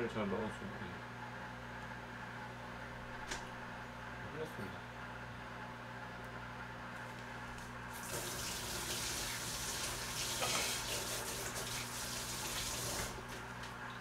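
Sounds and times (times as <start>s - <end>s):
tap water running into sink: 8.0s - 13.2s.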